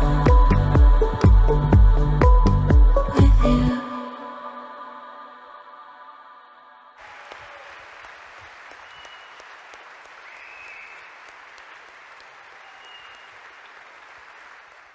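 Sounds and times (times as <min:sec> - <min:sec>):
audience applauding: 0:07.0 - 0:14.9
high whistles: 0:08.7 - 0:09.6, 0:10.2 - 0:11.4, 0:12.4 - 0:13.6.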